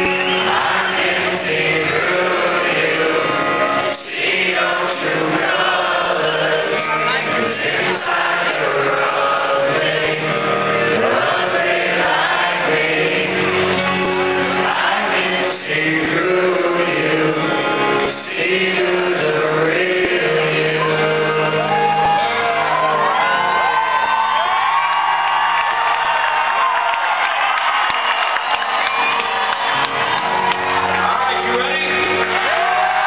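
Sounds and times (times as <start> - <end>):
acoustic guitar: 0.0 - 23.7
man singing into a microphone: 0.6 - 13.5, 14.7 - 23.2.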